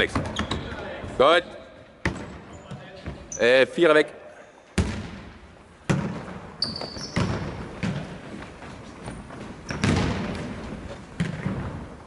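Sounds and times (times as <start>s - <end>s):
ball thudding on a hall floor: 4.8s - 11.9s
high squeak: 6.6s - 7.3s.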